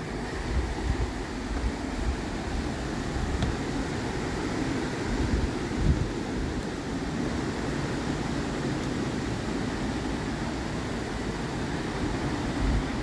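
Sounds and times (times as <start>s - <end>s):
waterfall and rapids rushing: 0.0s - 13.0s.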